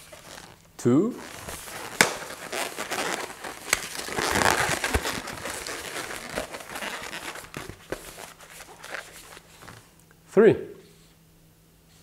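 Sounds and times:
balloon rubbing: 0:00.0 - 0:09.8.

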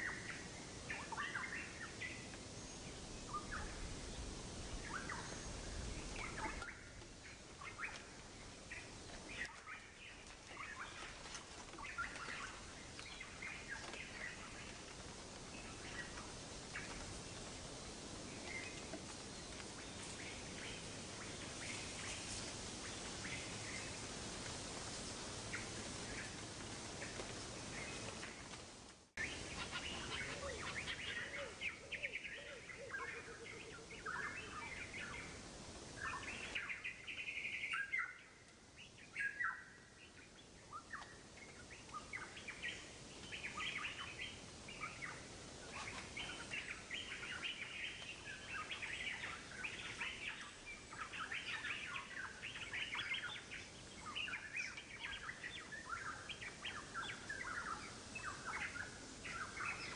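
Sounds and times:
birds chirping: 0:29.2 - 0:35.4, 0:36.0 - 0:59.9.

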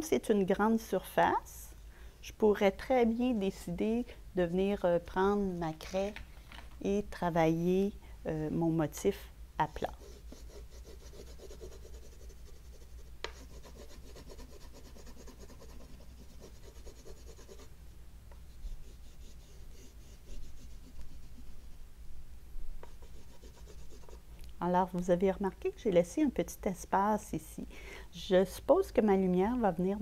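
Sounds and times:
pastel rubbing on wood: 0:09.8 - 0:17.7, 0:18.5 - 0:21.8, 0:22.8 - 0:24.2.

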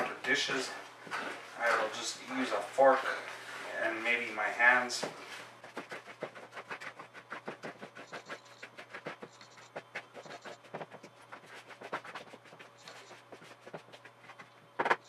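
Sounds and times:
fork stirring dough in plastic bowl: 0:05.6 - 0:14.6.

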